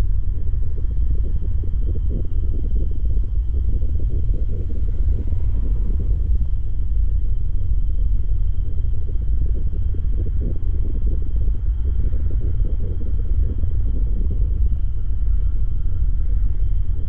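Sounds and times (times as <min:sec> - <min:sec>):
deep rumble of fire burning: 0:00.0 - 0:17.0.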